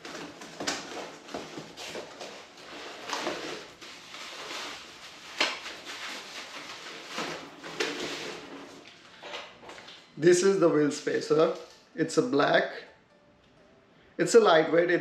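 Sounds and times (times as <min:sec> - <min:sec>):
plastic packaging crinkling: 0:00.0 - 0:10.0.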